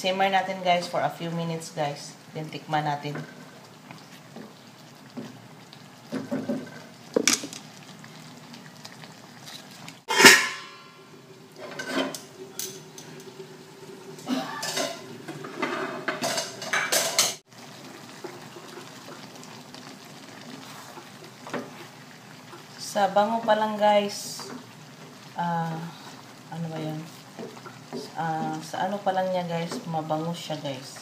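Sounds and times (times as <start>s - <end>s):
utensil scraping metal wok: 9.5s - 11.0s, 11.6s - 13.2s
metal lid clanging on wok: 10.1s - 11.0s.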